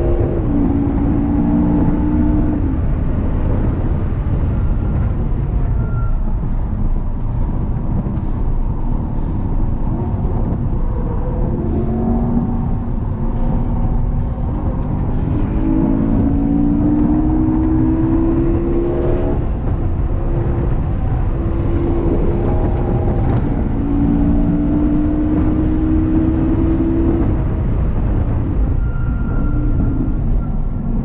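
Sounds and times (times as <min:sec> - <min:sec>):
car engine revving from cabin: 0:00.0 - 0:02.8, 0:11.4 - 0:19.8, 0:20.4 - 0:27.4
road and wind rumble: 0:00.0 - 0:31.0.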